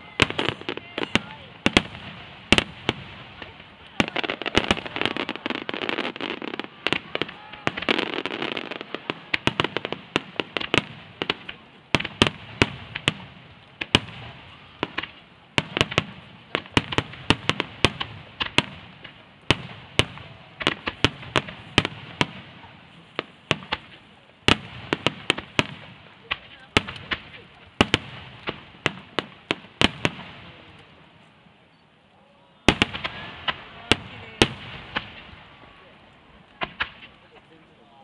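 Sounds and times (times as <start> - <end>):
fireworks bursting: 0.0 - 31.8, 32.6 - 38.0.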